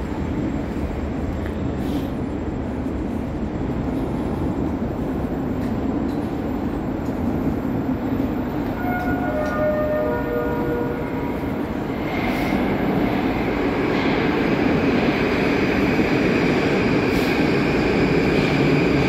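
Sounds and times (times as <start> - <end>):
metro train rumble: 0.0 - 19.0.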